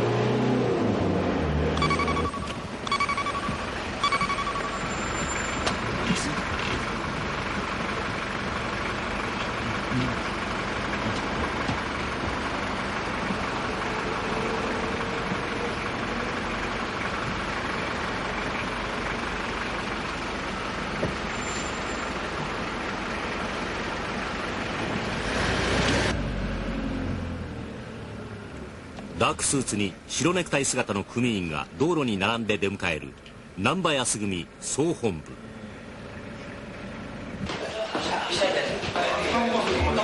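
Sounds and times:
road traffic noise: 0.0 - 40.0
vehicle passing close by: 25.1 - 27.6.

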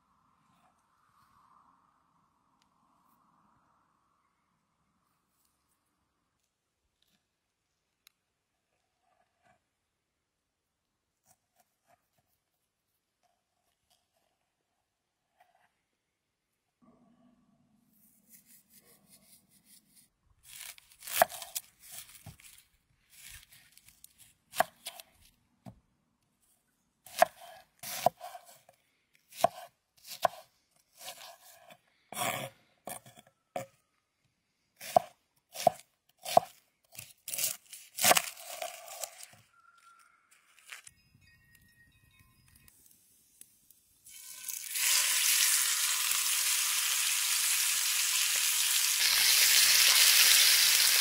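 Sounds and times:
knife chopping on wooden board: 27.1 - 28.4, 29.3 - 30.4, 34.8 - 38.2.

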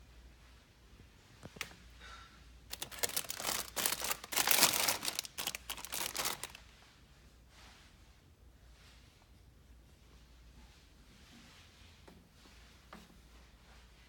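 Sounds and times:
cellophane crinkling: 2.7 - 6.6.

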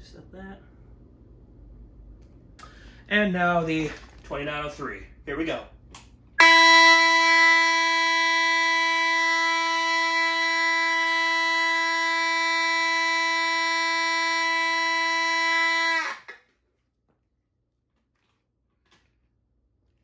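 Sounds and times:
fire alarm horn blast: 6.4 - 16.4.

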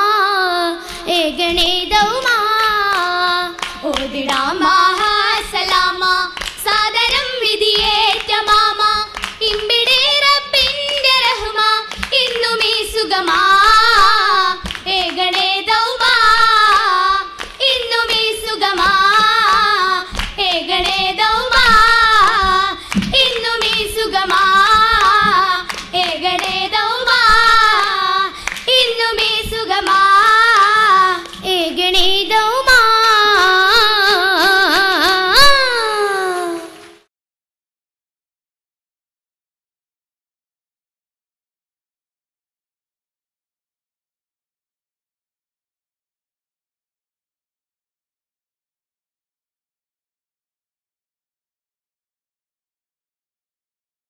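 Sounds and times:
rhythmic hand-clapping: 0.9 - 37.1
voices singing in chorus: 10.3 - 36.8.

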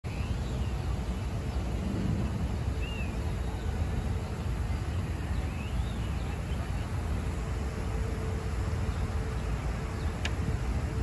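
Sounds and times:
distant traffic rumble: 0.0 - 11.0
bird chirping: 0.1 - 4.4.

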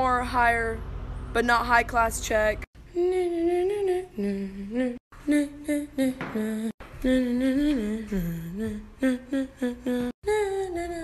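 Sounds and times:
person humming a tune: 2.9 - 11.0.

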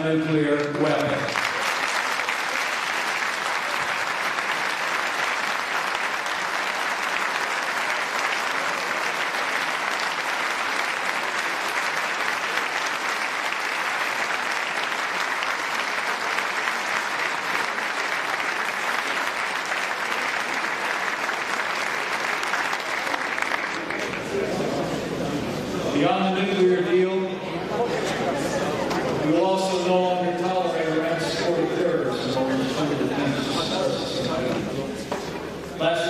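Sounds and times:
large audience applauding: 0.5 - 25.0.

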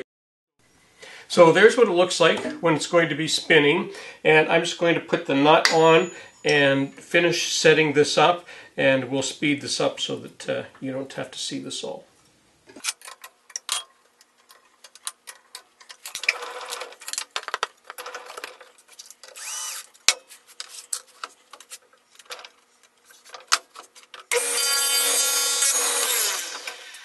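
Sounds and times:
table saw motor whining: 19.4 - 19.9, 24.3 - 27.0.

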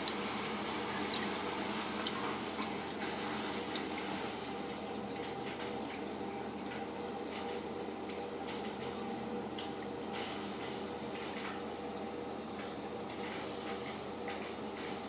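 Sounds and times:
water dripping and splashing: 0.0 - 12.0.

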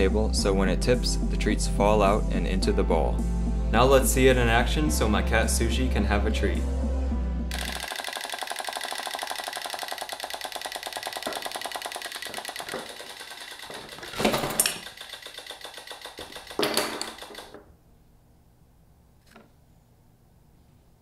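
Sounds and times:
clockwork toy rattling: 7.5 - 17.6.

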